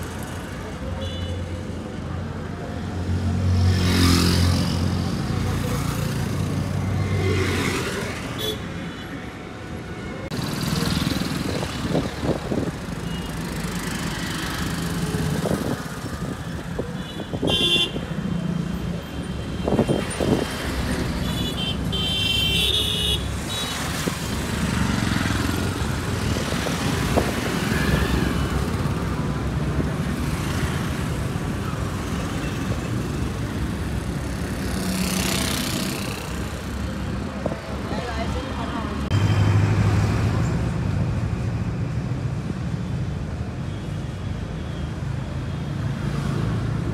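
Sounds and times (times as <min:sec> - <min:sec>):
motor vehicles passing: 0:02.9 - 0:08.4, 0:10.3 - 0:17.4, 0:22.8 - 0:42.5.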